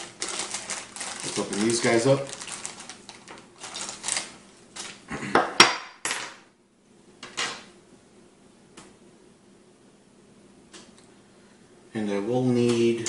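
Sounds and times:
plastic bag rustling: 0:00.0 - 0:05.1.

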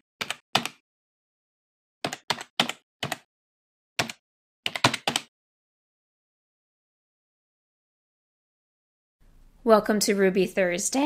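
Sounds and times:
keyboard keystrokes clicking: 0:00.2 - 0:00.8, 0:02.1 - 0:03.3, 0:04.0 - 0:05.3.

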